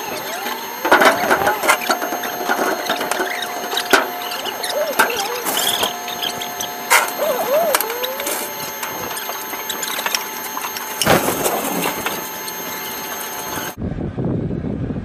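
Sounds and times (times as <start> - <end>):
loud rattle: 0.0 - 13.8
machine whine and hum: 0.0 - 15.0
metal clanks: 0.8 - 7.2.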